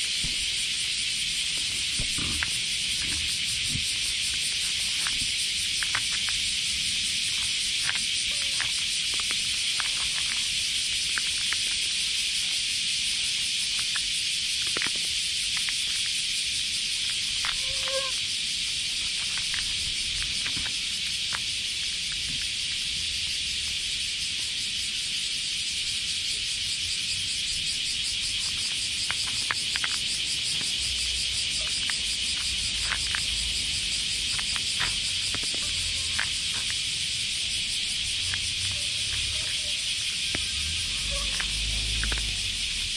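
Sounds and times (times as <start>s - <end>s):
cicadas chorus: 0.0s - 42.9s
cat crunching dry kibble: 1.7s - 12.6s.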